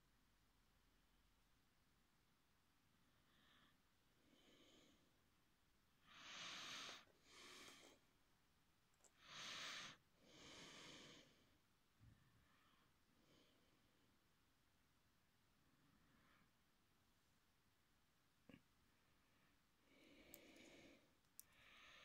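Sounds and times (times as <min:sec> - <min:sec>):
close breathing: 0:03.1 - 0:05.2, 0:06.0 - 0:08.1, 0:09.1 - 0:14.1, 0:19.2 - 0:22.0.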